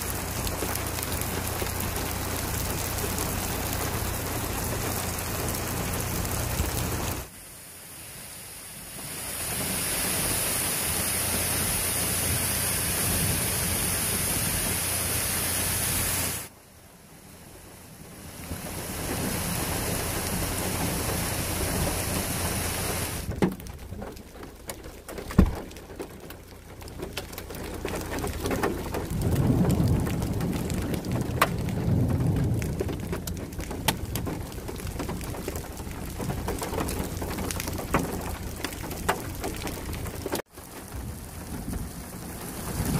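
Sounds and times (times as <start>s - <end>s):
raindrop hits: 0.0s - 7.3s, 18.2s - 42.9s
water rushing down gully: 0.0s - 16.6s, 17.2s - 42.9s
low rumble of thunder: 26.8s - 42.9s.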